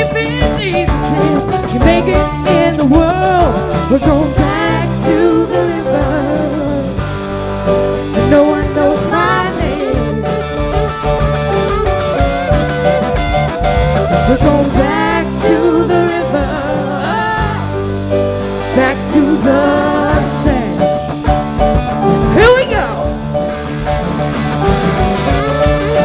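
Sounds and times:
woman singing lead vocals: 0:00.0 - 0:07.1, 0:08.1 - 0:10.8, 0:14.1 - 0:17.9, 0:18.6 - 0:21.2
live rock band playing: 0:00.0 - 0:26.0.

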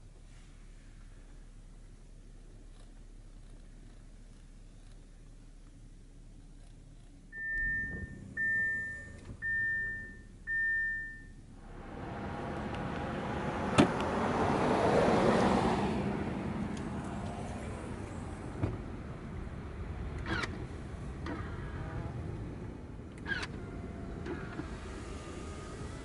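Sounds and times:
car engine running: 0:00.0 - 0:26.0
car warning chime: 0:07.3 - 0:11.4.

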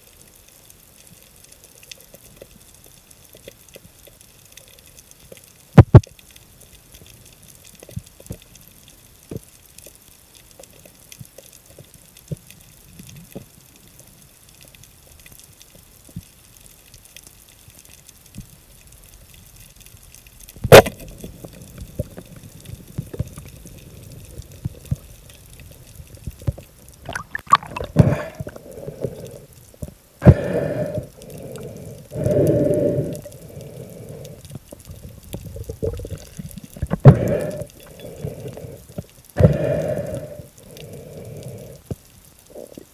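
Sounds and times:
underwater water noise: 0:00.0 - 0:42.9
water rushing and gurgling: 0:20.5 - 0:42.9.

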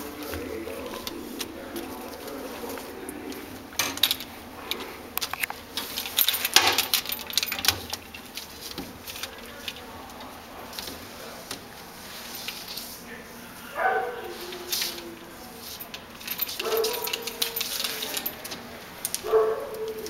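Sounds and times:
wire cage clinking and rattling: 0:03.7 - 0:10.0, 0:13.8 - 0:18.6.

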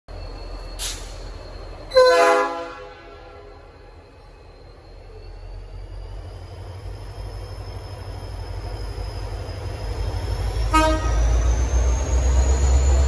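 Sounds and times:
diesel locomotive engine rumble: 0:00.1 - 0:13.0
locomotive horn toot: 0:01.9 - 0:03.7, 0:10.6 - 0:11.4.

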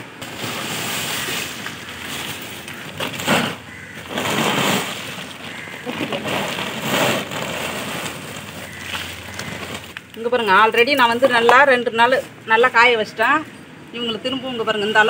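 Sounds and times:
plastic sack crinkling: 0:00.0 - 0:10.2
coconut pieces clattering onto tarpaulin: 0:00.0 - 0:11.7.

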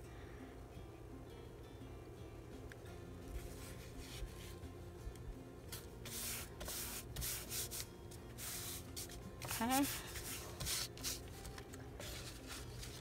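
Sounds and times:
hands rubbing paper napkin: 0:06.0 - 0:11.3.

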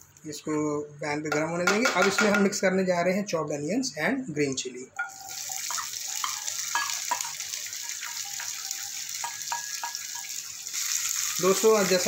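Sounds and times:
wooden spatula tapping and scraping: 0:01.3 - 0:02.6
onions sizzling in hot oil: 0:05.0 - 0:12.0.

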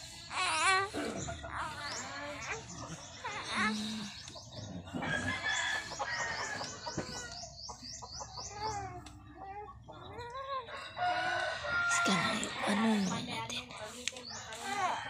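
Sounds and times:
chickens clucking: 0:00.0 - 0:13.2.

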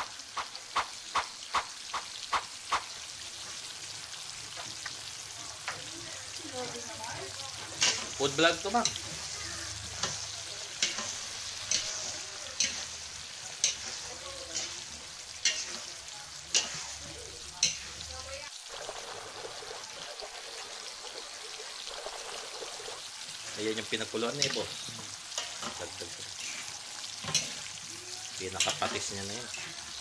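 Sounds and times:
shrimp sizzling in a wok: 0:00.0 - 0:30.0
spatula scraping a pan: 0:07.6 - 0:18.1.

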